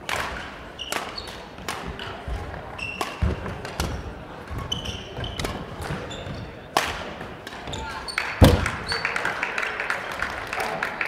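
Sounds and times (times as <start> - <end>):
rackets hitting shuttlecock: 0.1 - 2.2, 6.7 - 8.9
shoes squeaking on court: 0.7 - 6.6.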